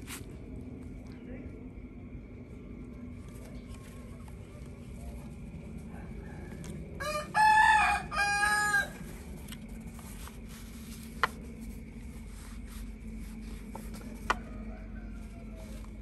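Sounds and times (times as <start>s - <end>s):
rooster crowing: 5.9s - 9.4s, 14.0s - 16.0s.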